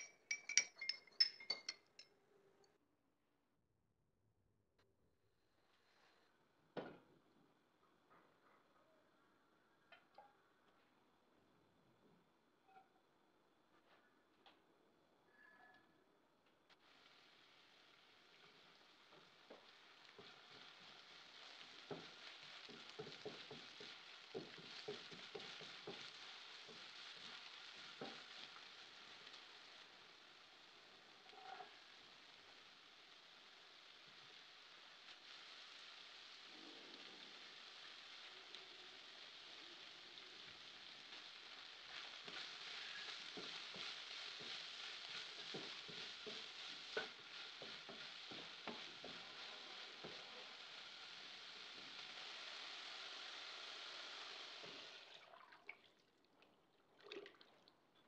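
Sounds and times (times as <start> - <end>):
chillies and garlic sizzling: 0.0 - 2.1, 16.7 - 55.1
wooden spatula scraping a wok: 18.4 - 29.7, 38.9 - 55.0.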